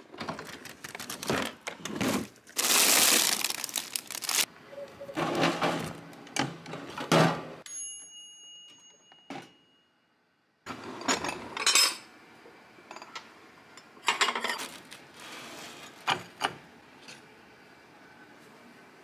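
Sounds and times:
timer bell ringing: 7.6s - 9.9s.

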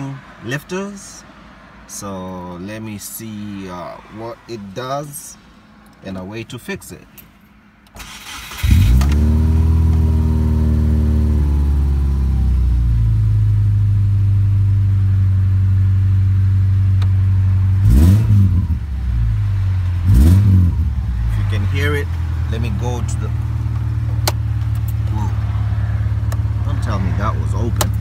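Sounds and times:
car engine starting and idling: 0.0s - 28.0s
engine revving: 8.0s - 13.9s, 16.0s - 28.0s.

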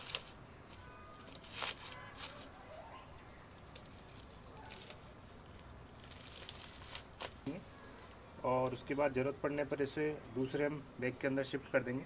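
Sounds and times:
hands rustling crumbly soil: 0.0s - 2.6s, 3.2s - 8.2s.

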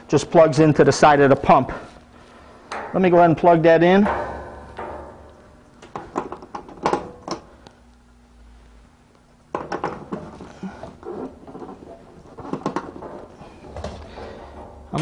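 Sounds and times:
scraping and rustling: 10.0s - 15.0s.

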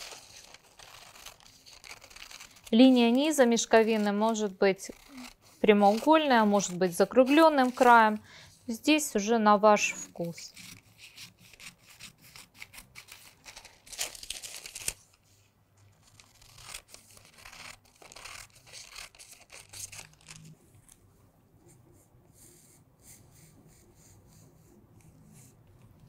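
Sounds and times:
paper rustling: 0.0s - 8.2s, 10.2s - 21.0s
scissors snipping paper: 0.0s - 8.2s, 16.0s - 20.4s.

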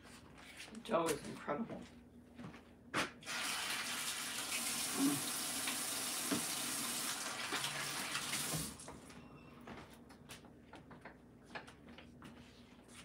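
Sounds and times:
faucet running: 3.2s - 8.9s.

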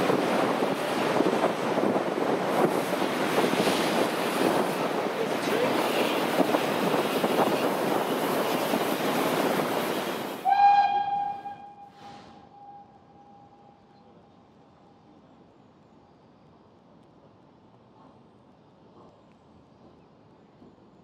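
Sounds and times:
steam locomotive working: 0.0s - 14.0s
steam whistle blast: 10.4s - 13.6s.

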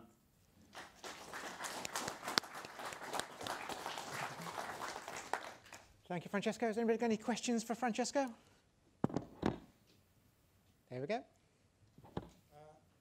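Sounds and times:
audience applauding: 0.7s - 5.9s.

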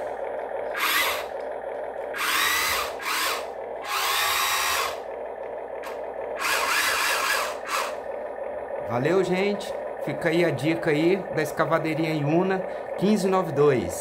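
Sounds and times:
toy electric motors whirring: 0.0s - 8.2s.

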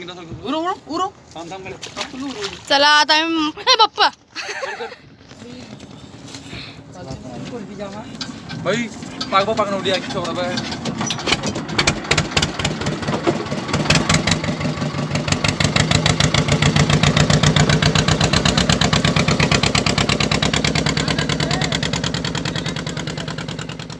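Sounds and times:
boat engine pulsing: 5.7s - 23.9s.

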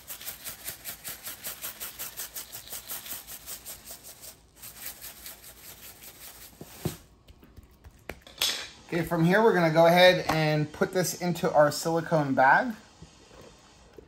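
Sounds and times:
seasoning shaker rattling: 0.0s - 6.8s.

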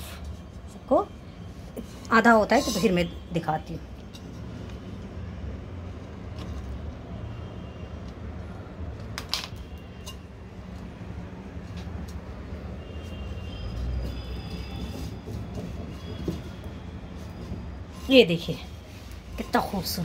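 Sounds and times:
hands handling rope clicks and rustles: 6.0s - 7.0s.

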